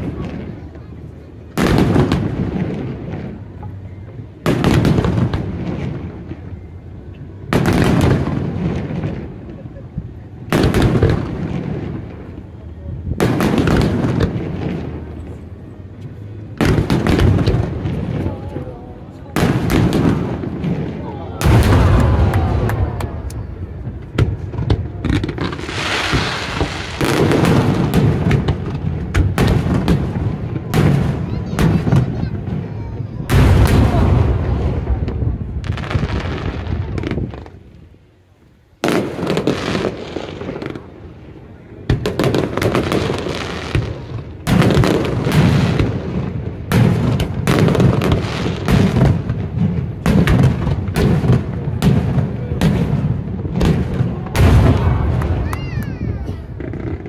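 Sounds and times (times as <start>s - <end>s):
fireworks booming: 0.0s - 38.0s, 38.8s - 57.0s
rumble after boom: 21.4s - 30.0s.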